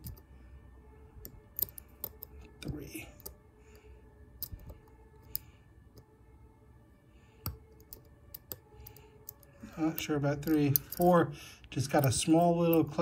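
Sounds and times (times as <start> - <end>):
lock pick metallic clicks: 1.2 - 3.4, 7.4 - 11.1.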